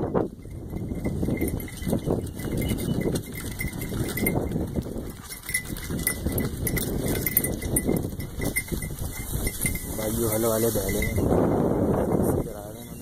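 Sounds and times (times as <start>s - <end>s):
bullocks walking and harness knocking: 0.0s - 11.5s.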